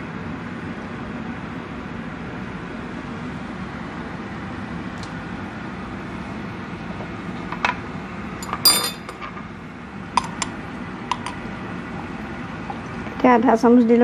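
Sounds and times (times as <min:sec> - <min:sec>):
ringing clink of kitchenware: 0:08.4 - 0:09.1.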